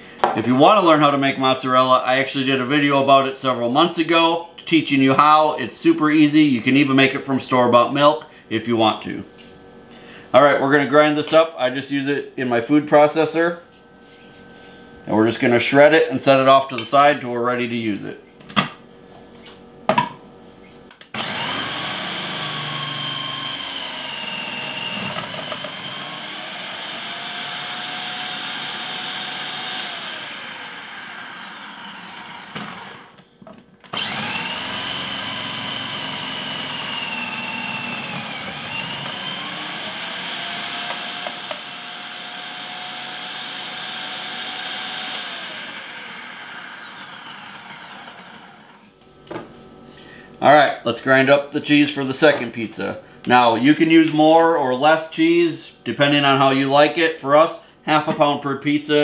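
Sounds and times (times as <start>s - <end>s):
food processor motor whining: 21.1s - 48.9s.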